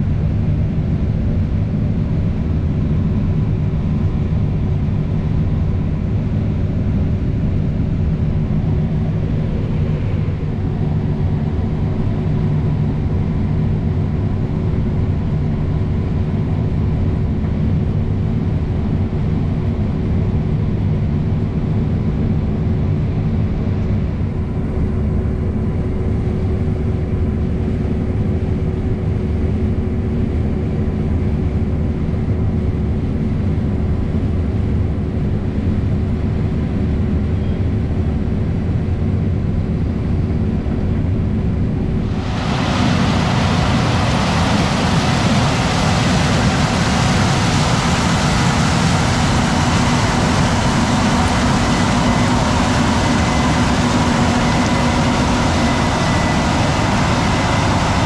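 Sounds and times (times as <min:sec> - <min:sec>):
constant hum: 0:00.0 - 0:58.0
diesel engine drone: 0:00.0 - 0:58.0.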